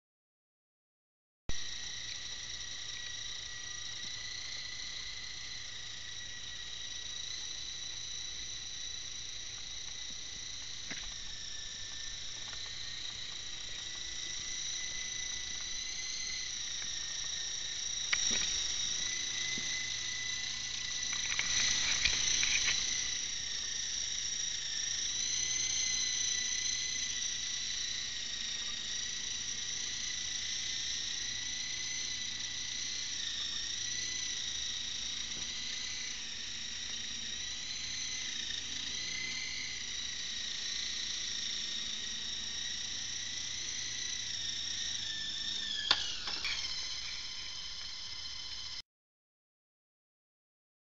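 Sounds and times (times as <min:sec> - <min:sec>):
model helicopter whine: 0:01.5 - 0:48.8
sharp click: 0:45.8 - 0:46.7.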